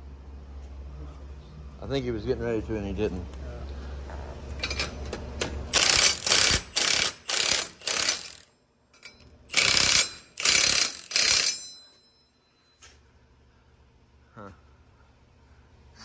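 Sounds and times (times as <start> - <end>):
impact wrench hammering: 4.6 - 12.2.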